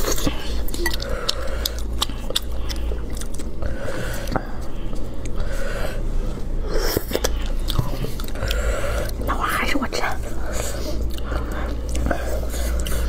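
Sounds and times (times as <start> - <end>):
wet chewing and biting: 0.0 - 5.5, 6.4 - 9.3, 10.4 - 13.0.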